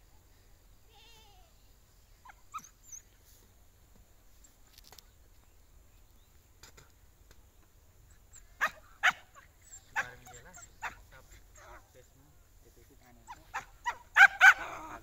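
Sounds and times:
animal calling: 8.1 - 12.0, 13.1 - 15.0.

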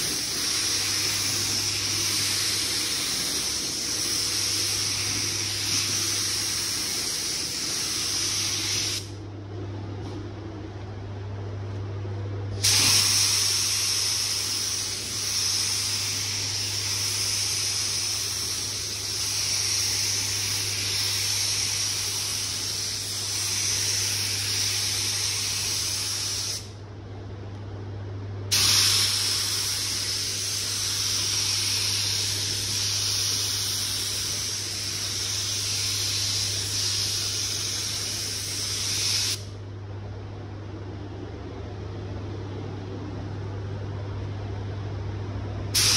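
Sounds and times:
spray gun hissing: 0.0 - 9.1, 12.6 - 26.7, 28.5 - 39.5.

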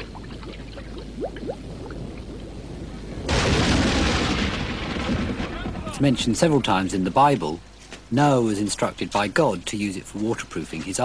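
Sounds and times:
oil bubbling with plops: 0.0 - 2.6.

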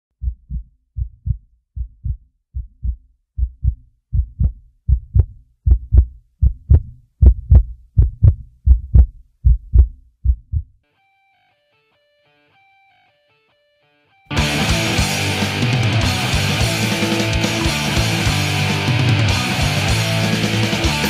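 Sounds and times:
heartbeat thumps: 0.2 - 10.8.

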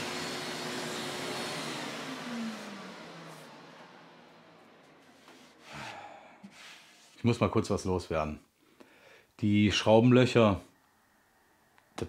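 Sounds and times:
orbital sander whir winding down: 0.0 - 5.6.

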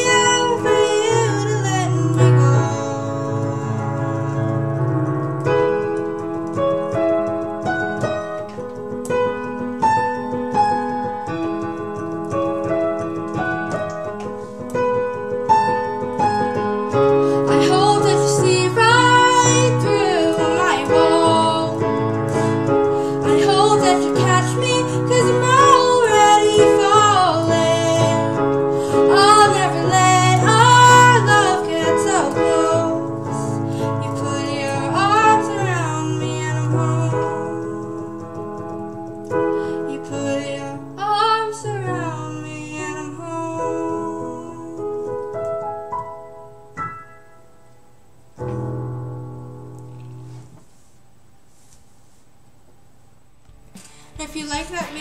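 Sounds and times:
woman singing: 0.0 - 4.8, 17.4 - 38.2, 39.6 - 45.2
digital piano chords: 0.0 - 50.6.

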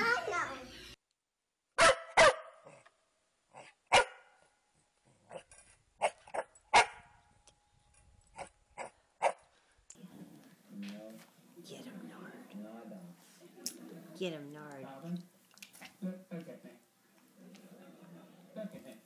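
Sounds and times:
small dog barking: 1.8 - 2.8, 3.9 - 4.3, 6.0 - 7.0, 8.8 - 9.4.

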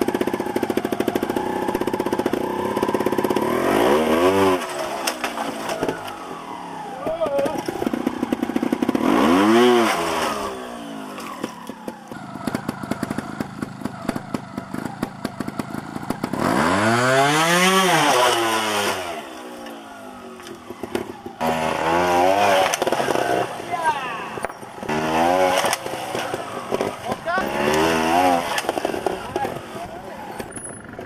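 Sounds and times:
motorcycle engine revving: 0.0 - 31.0
engine ticking over unevenly: 11.2 - 16.6, 25.7 - 31.0.

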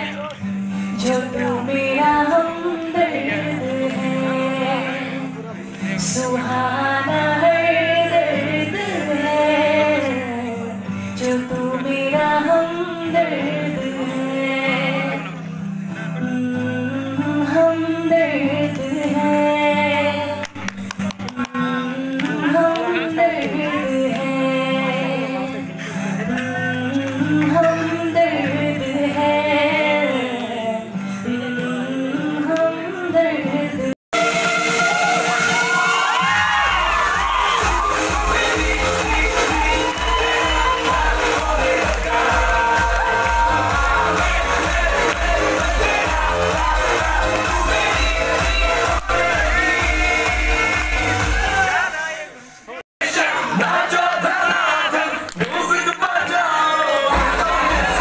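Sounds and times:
woman singing into a microphone: 0.0 - 34.0
acoustic guitar: 0.0 - 58.0.

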